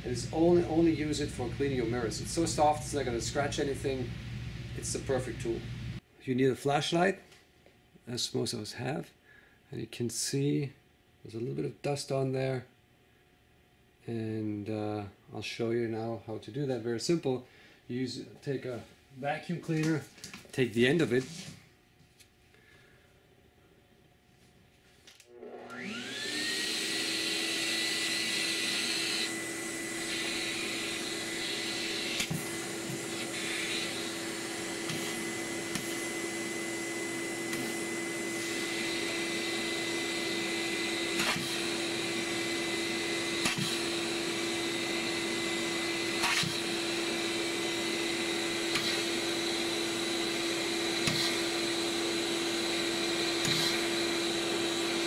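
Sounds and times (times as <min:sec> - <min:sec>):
vacuum cleaner running: 0:00.0 - 0:06.0, 0:25.2 - 0:55.0.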